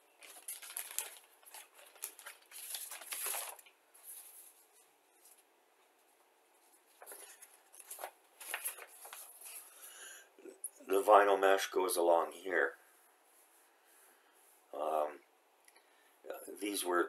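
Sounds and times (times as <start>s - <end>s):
plastic packaging crinkling: 0.0s - 5.4s, 6.8s - 10.0s
paper rustling: 0.1s - 10.0s.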